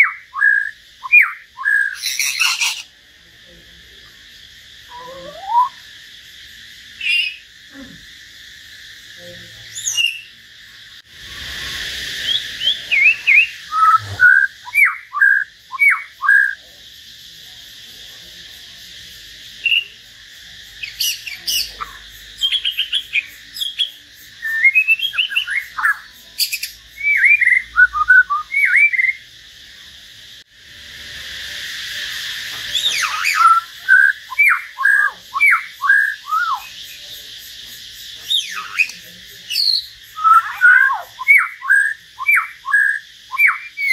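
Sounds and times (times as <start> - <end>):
birds singing whistled notes: 0.0 - 2.9, 4.8 - 5.8, 7.0 - 7.5, 9.7 - 10.4, 11.2 - 16.6, 19.6 - 20.0, 20.8 - 29.3, 32.5 - 37.2, 38.2 - 43.9
background hiss: 0.0 - 43.9.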